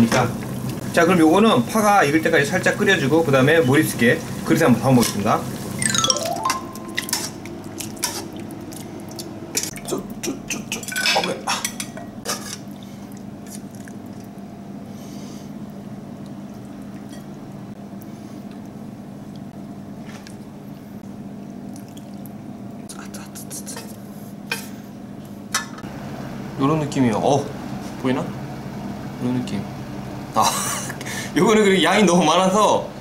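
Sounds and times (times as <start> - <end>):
utensils clinking on metal pot: 6.4 - 8.2, 10.7 - 12.6.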